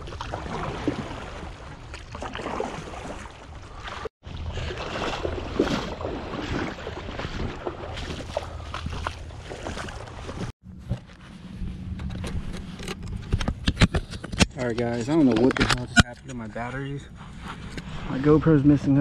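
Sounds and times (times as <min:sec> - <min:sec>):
footsteps splashing in water: 0:00.0 - 0:10.5
kayak paddle splashing: 0:00.0 - 0:10.5.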